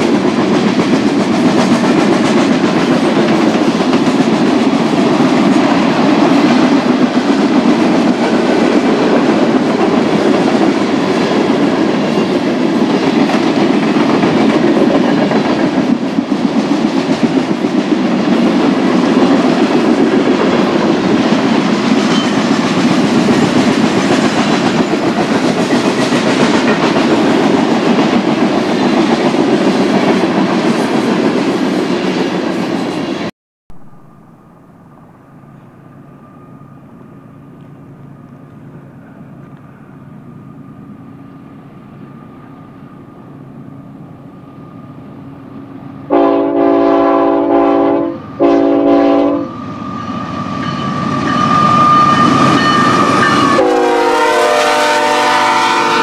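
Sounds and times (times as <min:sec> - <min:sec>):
train wheels clattering over rails: 0:00.0 - 0:33.2.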